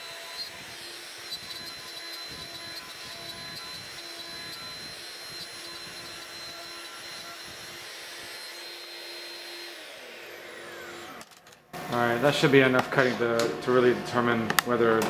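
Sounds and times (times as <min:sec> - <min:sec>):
router spindle whine: 0:00.0 - 0:15.0
shop vacuum rushing air: 0:11.8 - 0:15.0.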